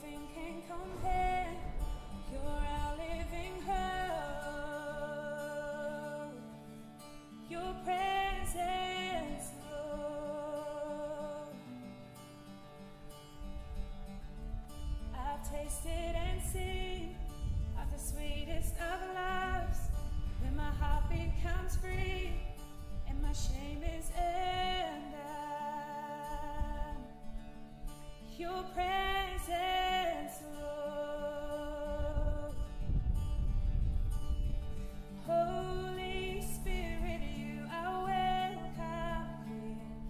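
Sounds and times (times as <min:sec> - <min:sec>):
person singing: 0:00.0 - 0:06.6, 0:07.5 - 0:11.7, 0:28.4 - 0:32.6, 0:35.2 - 0:40.0.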